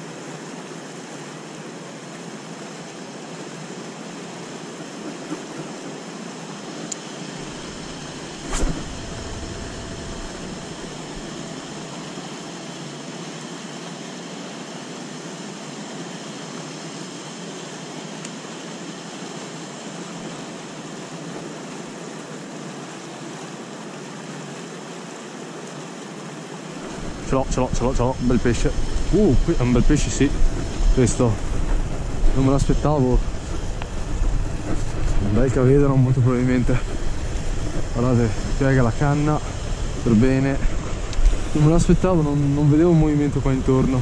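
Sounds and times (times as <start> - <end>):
sharp knock: 8.4 - 11.3.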